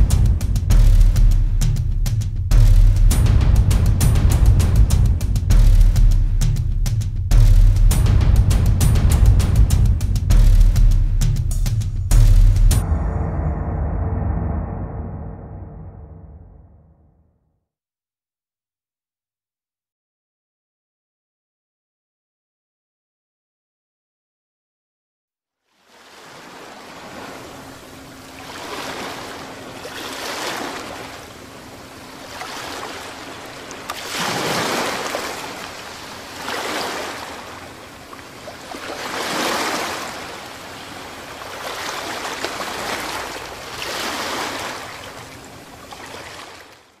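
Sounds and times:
waves washing in: 0:25.8 - 0:47.0.

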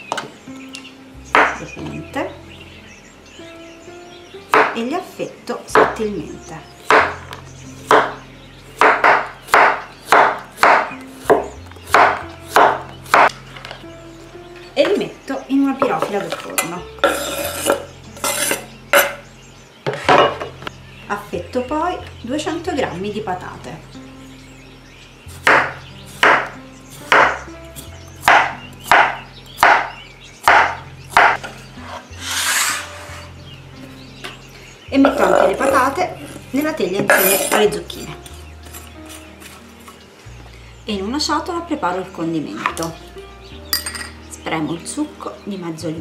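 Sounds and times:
quiet background music: 0:00.0 - 0:46.0
knife chopping on cutting board: 0:04.5 - 0:04.8, 0:06.8 - 0:07.2, 0:07.9 - 0:08.2, 0:08.8 - 0:13.3, 0:25.4 - 0:26.5, 0:27.1 - 0:31.5
knife slicing on wooden board: 0:31.2 - 0:33.3.

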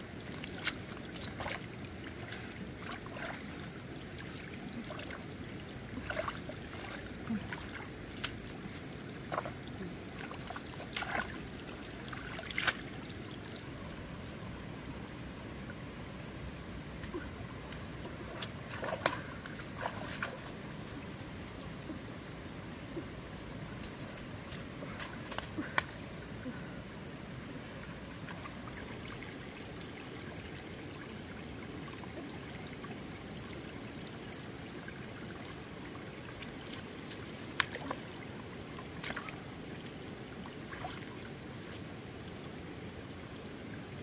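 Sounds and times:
water trickling: 0:00.0 - 0:14.7, 0:27.6 - 0:43.3.

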